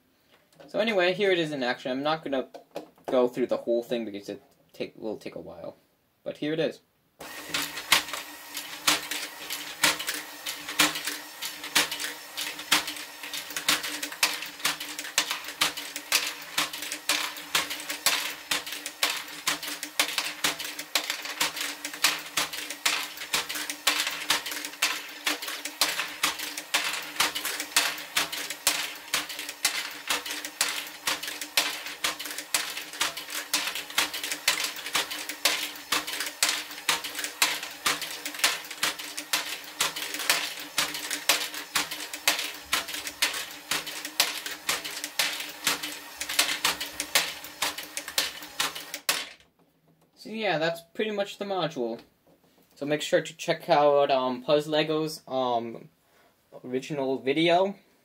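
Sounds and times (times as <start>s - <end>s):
plastic balls clattering: 7.2s - 49.5s
geared drive hum: 7.2s - 50.4s.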